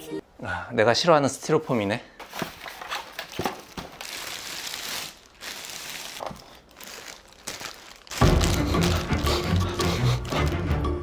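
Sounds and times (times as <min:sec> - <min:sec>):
plastic bag crinkling: 0:02.6 - 0:10.7.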